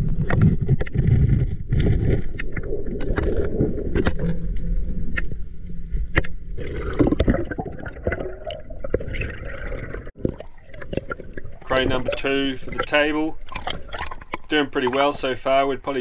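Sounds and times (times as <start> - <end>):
underwater rumble of water: 0.0 - 16.0
rush of bubbles: 6.6 - 15.2.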